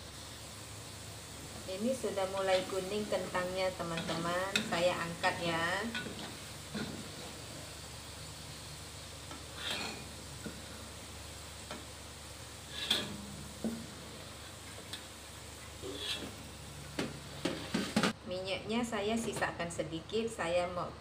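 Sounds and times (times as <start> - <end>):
potatoes sizzling in oil: 0.0 - 18.2
spatula scraping a wok: 9.2 - 10.8, 12.5 - 14.8, 15.8 - 16.6.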